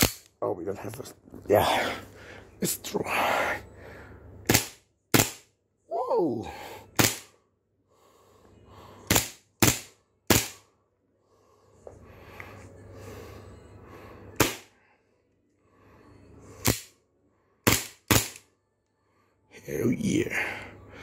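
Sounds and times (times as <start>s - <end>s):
airsoft pistol shots: 4.5s - 5.5s, 7.0s - 7.3s, 9.1s - 10.6s, 14.4s - 14.7s, 17.6s - 18.4s.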